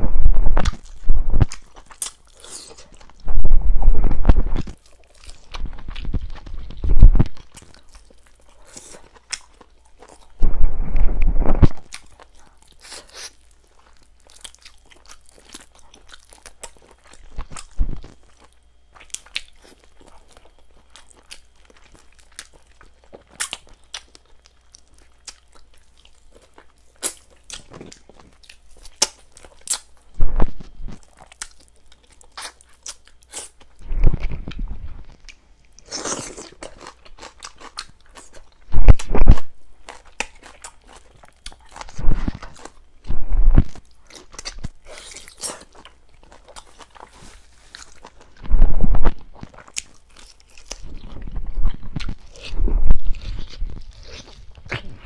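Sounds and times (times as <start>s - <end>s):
person chewing and crunching: 0.0s - 55.0s
thumps: 3.3s - 4.8s.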